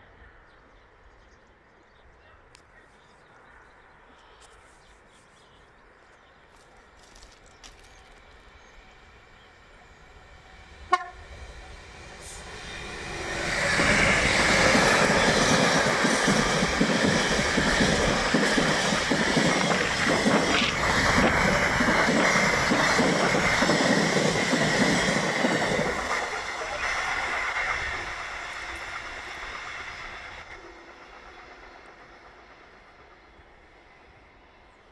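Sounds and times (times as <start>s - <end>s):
diesel locomotive engine passing: 5.9s - 34.9s
wagons rumbling over rails: 6.8s - 34.9s
train horn blast: 10.9s - 11.3s.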